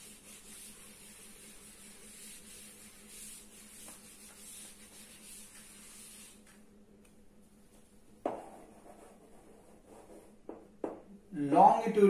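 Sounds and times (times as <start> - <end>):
duster wiping a blackboard: 0.0 - 6.6, 8.3 - 10.5.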